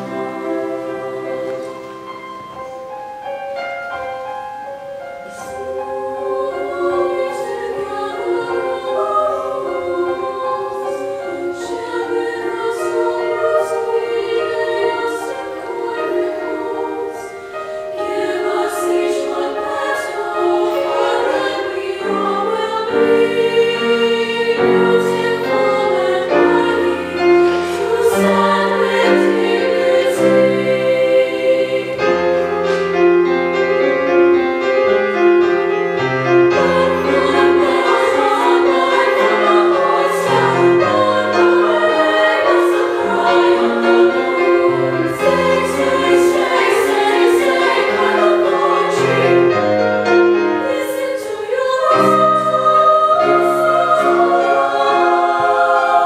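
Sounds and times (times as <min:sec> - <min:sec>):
women's chorus singing: 0:00.0 - 0:02.9, 0:05.2 - 0:34.2, 0:36.3 - 0:56.0
piano accompaniment: 0:00.0 - 0:56.0.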